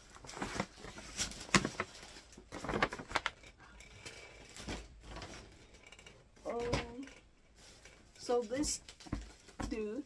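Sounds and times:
gift bag rustling: 0:00.0 - 0:05.6.

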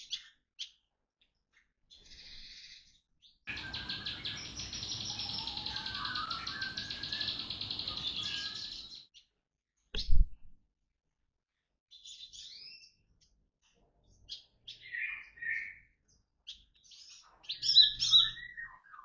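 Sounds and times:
small songbirds chirping: 0:00.0 - 0:09.4, 0:11.9 - 0:19.0
rapid trilling birdsong: 0:01.9 - 0:09.2, 0:16.5 - 0:19.0.

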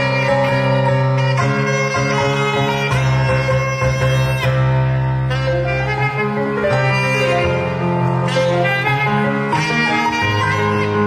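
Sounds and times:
digital piano accompaniment: 0:00.0 - 0:11.0
low bass line: 0:00.0 - 0:11.0
saxophone slow melody: 0:00.0 - 0:11.0.

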